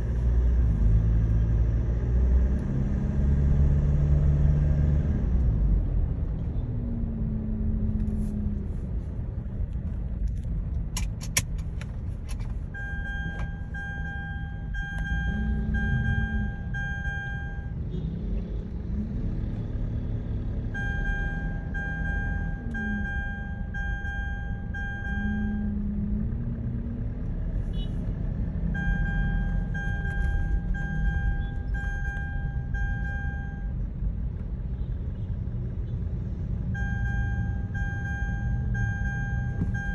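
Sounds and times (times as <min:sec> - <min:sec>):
seat belt reminder beeps: 0:12.7 - 0:17.8, 0:20.8 - 0:25.8, 0:28.8 - 0:33.8, 0:36.8 - 0:39.9
car cabin rumble: 0:36.8 - 0:39.9.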